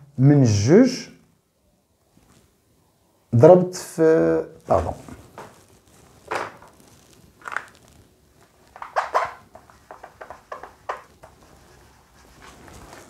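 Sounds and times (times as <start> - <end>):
marker pen writing on whiteboard: 8.7 - 13.0.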